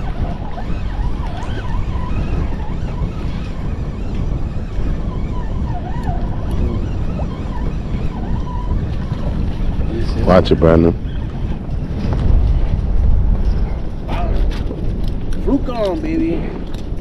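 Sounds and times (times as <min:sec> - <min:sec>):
faint wavering tones: 0:00.0 - 0:11.6
wind buffeting microphone: 0:00.0 - 0:17.0.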